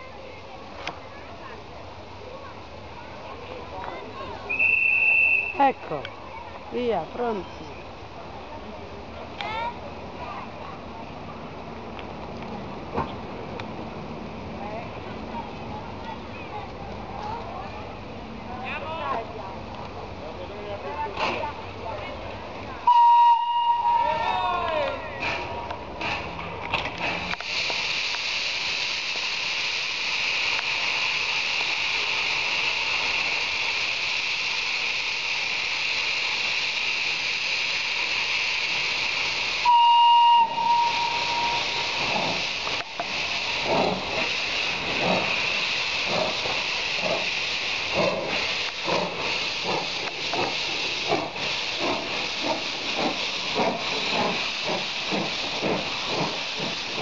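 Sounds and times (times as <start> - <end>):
high steam whistle blast: 4.5 - 5.7, 22.9 - 24.3, 39.6 - 42.0
steam exhaust chuffs: 25.2 - 57.0
steam hissing: 25.2 - 57.0.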